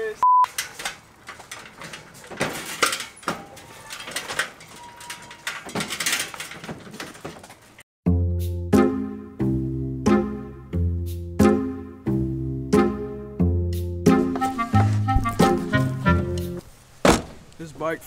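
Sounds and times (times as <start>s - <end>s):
dirt bikes knocking on metal ramp: 0.5s - 7.8s, 17.0s - 17.5s.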